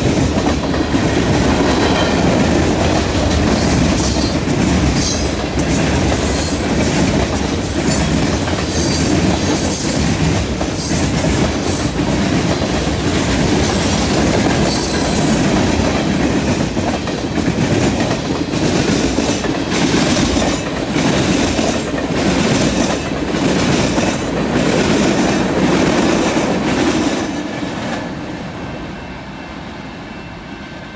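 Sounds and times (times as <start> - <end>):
freight train rumbling past: 0.0 - 30.9.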